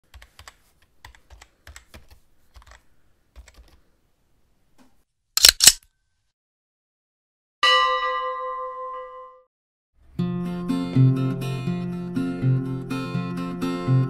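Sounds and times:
sharp loud clicks: 5.4 - 5.8.

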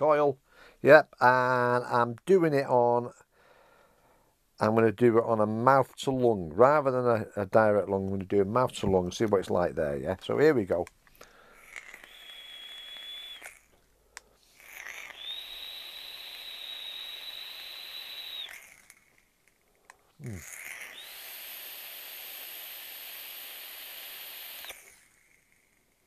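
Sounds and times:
e-cigarette draw hiss with whistle: 11.6 - 13.6, 14.4 - 18.7, 20.9 - 24.8.

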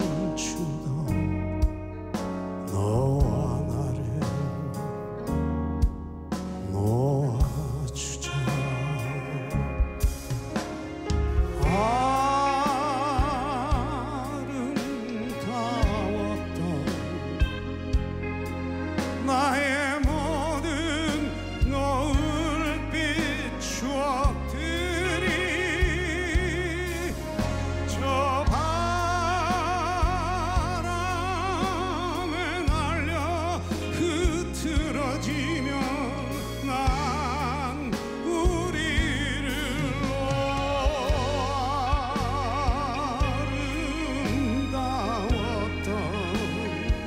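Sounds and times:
live band playing slow ballad: 0.0 - 47.0.

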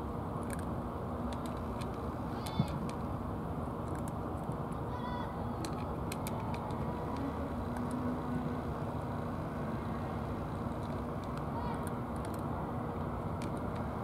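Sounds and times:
low outdoor rumble: 0.0 - 14.0
cat crunching dry food: 0.4 - 0.7, 3.8 - 4.8, 5.6 - 6.8, 10.6 - 12.5.

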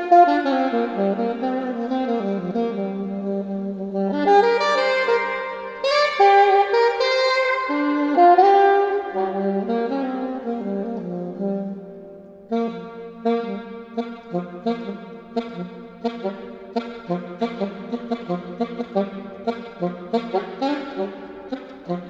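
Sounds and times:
alto saxophone improvising: 0.0 - 22.0.

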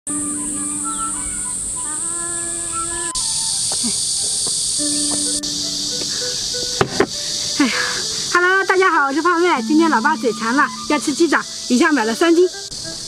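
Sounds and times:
light background music: 0.1 - 3.7, 4.7 - 13.0
insect chorus drone: 0.1 - 13.0
basket knocking on wooden table: 6.8 - 7.2.

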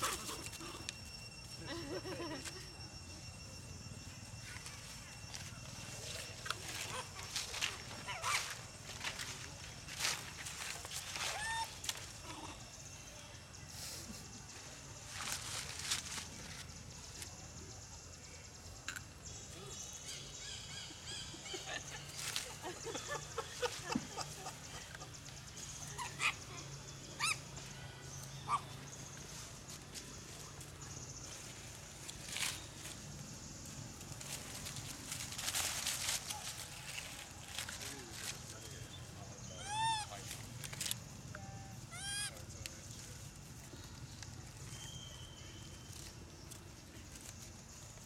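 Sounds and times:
monkeys squealing: 6.2 - 9.3, 10.9 - 12.6, 20.4 - 28.8, 39.4 - 40.4, 41.5 - 42.5.

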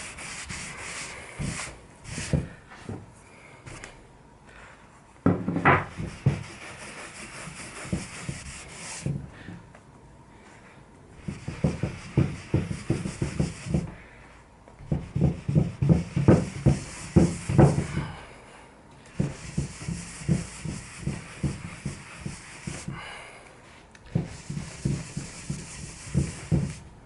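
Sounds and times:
cloth rubbing wax into wood: 0.0 - 2.5, 5.9 - 9.1, 11.2 - 14.0, 14.9 - 18.0, 19.2 - 23.0, 24.1 - 26.9.

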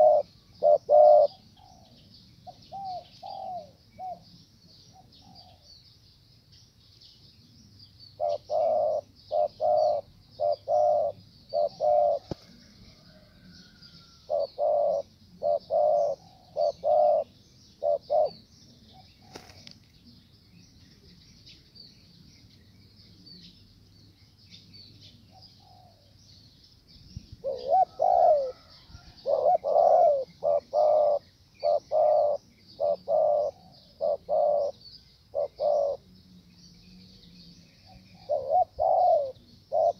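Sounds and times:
doves cooing: 0.0 - 4.2, 8.2 - 19.8, 27.4 - 36.2, 36.8 - 39.9.

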